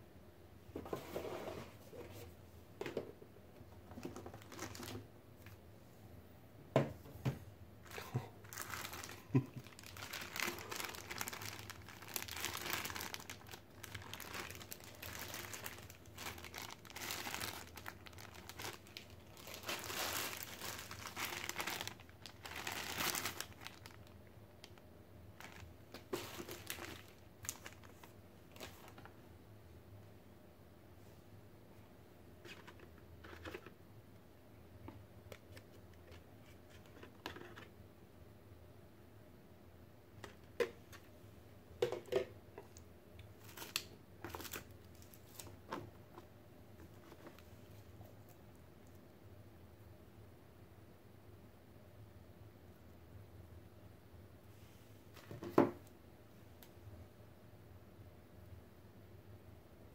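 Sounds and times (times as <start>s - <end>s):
plastic bags crinkling: 4.3s - 5.0s, 7.9s - 24.8s, 25.4s - 29.1s, 43.4s - 45.6s.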